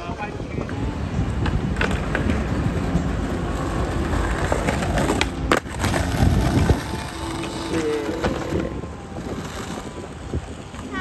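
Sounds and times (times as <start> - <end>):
skateboard wheels rolling on stone: 0.0 - 11.0
skateboards clacking on ground: 0.0 - 11.0.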